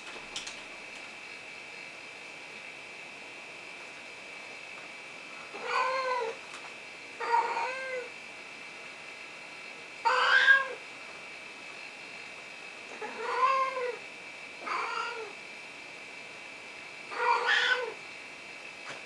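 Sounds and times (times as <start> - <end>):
cat meowing: 10.1 - 10.8, 13.0 - 14.0, 14.6 - 15.3, 17.1 - 18.0.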